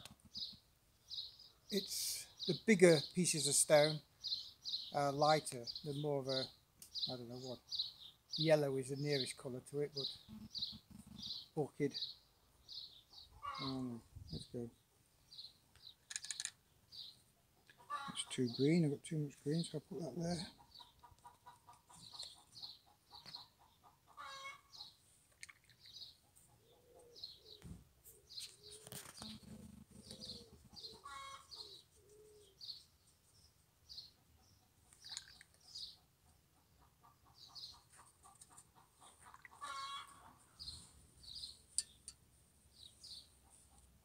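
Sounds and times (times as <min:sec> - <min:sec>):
faint birdsong chirps: 0:00.0 - 0:44.0
hen clucking: 0:13.2 - 0:14.0, 0:17.6 - 0:18.6, 0:19.9 - 0:24.9, 0:28.6 - 0:32.5, 0:36.5 - 0:40.6.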